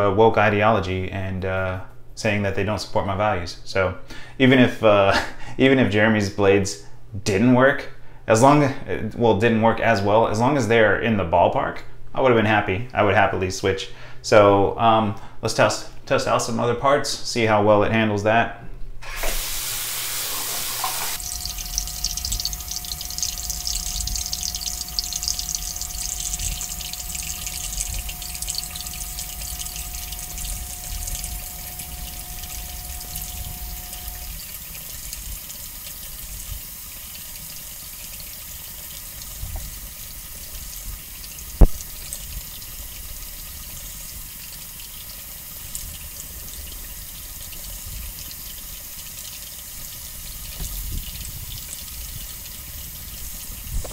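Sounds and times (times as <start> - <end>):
water running from tap: 19.1 - 53.9.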